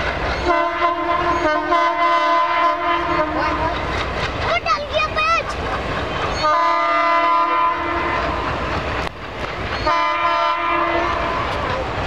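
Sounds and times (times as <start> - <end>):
train rumble and clatter: 0.0 - 12.0
locomotive horn blasts: 0.4 - 3.8, 6.4 - 8.4, 9.8 - 11.5.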